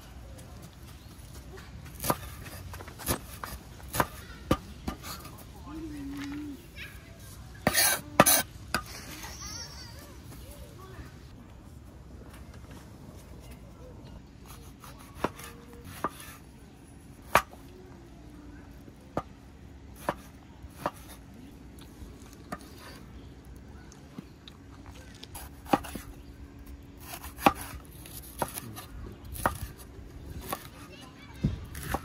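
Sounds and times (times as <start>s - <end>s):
knife chopping on wooden board: 14.6s - 16.4s, 20.0s - 21.2s, 25.4s - 26.0s, 27.0s - 29.8s.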